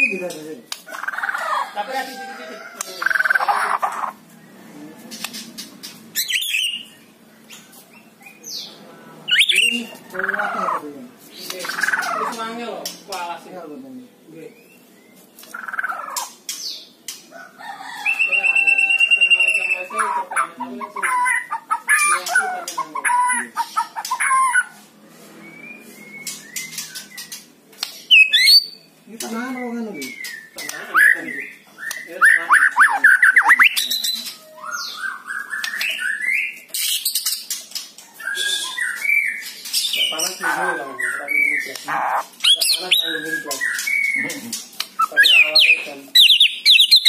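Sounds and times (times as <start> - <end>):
bird chattering: 0.0 - 1.8, 2.8 - 4.4, 5.1 - 13.4, 14.8 - 17.0, 18.0 - 24.8, 26.4 - 47.0
bird whistling song: 6.2 - 7.0, 9.3 - 9.8, 25.4 - 27.4, 28.1 - 28.9, 29.9 - 37.4, 38.2 - 41.8, 42.4 - 44.3, 45.0 - 47.0.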